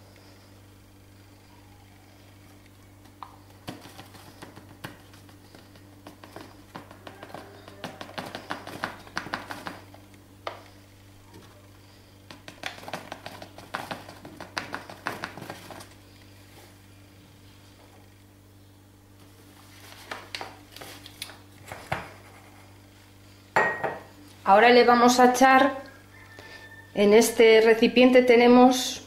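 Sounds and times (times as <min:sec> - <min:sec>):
flour packet rustling: 0:03.4 - 0:10.1, 0:12.3 - 0:16.8, 0:19.3 - 0:22.2
knocks against a mug: 0:23.6 - 0:24.0.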